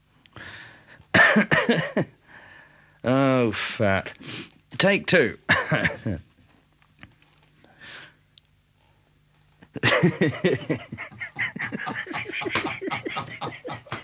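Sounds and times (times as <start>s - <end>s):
faint breath: 0.4s - 1.0s, 2.2s - 3.0s, 7.6s - 9.1s
loud burst of laughter: 9.8s - 14.0s.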